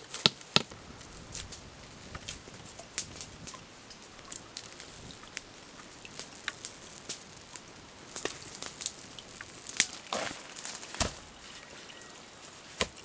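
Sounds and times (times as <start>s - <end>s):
movement on dry leaves: 0.0s - 13.0s
rock thudding on ground: 10.2s - 11.2s.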